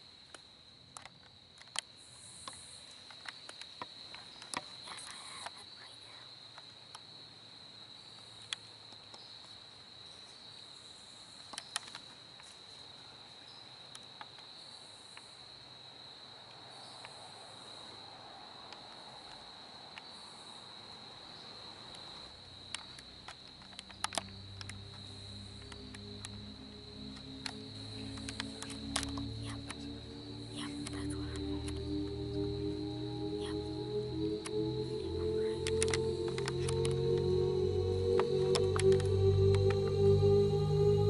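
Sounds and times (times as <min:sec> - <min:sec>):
crickets trilling: 0:00.0 - 0:41.0
sharp clicks: 0:27.1 - 0:30.0, 0:35.5 - 0:37.4.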